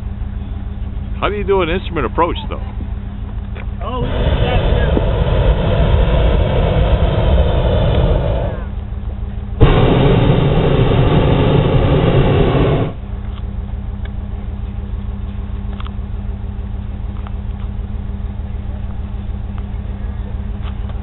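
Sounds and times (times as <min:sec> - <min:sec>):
engine hum: 0:00.0 - 0:21.0
propane burner roaring: 0:00.0 - 0:21.0.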